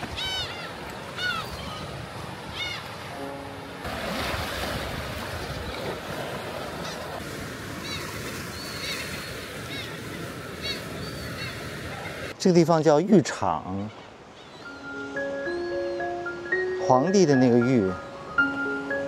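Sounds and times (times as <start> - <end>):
seabirds calling: 0.0 - 19.0
surf washing on rocky shore: 1.8 - 12.4.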